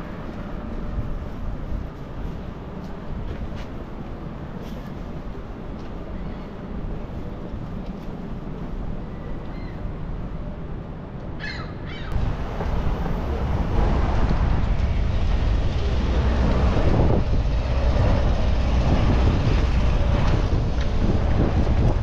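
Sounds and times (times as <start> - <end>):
wind buffeting microphone: 12.1 - 22.0.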